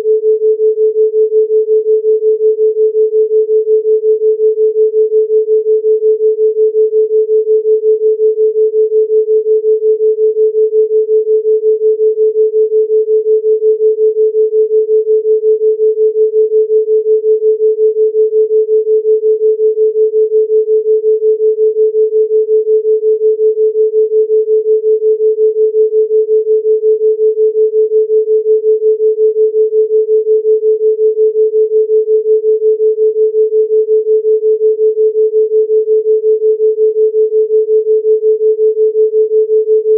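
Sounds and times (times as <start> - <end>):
pulsing sine tone: 0.0 - 39.9.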